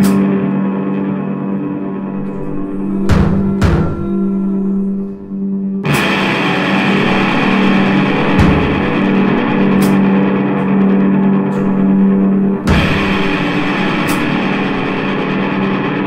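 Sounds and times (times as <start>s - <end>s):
distorted electric guitar: 0.0s - 16.0s
low drone: 0.0s - 16.0s
drum hits: 2.2s - 5.2s, 5.9s - 10.2s, 11.5s - 15.6s.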